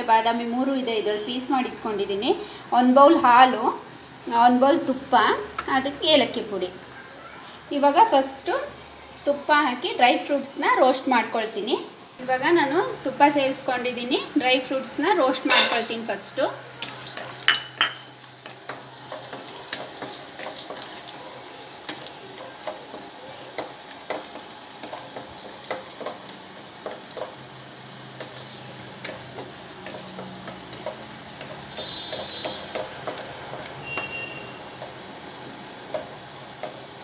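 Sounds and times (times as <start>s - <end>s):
nuts sizzling in pan: 0.0s - 37.0s
wooden spatula knocking pan: 29.0s - 34.1s.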